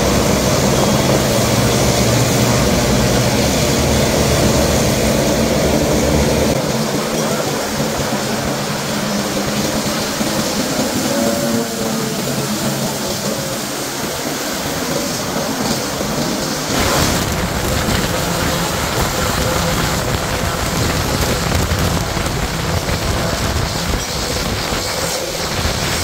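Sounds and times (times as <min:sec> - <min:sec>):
turboprop engines droning: 0:00.0 - 0:26.0.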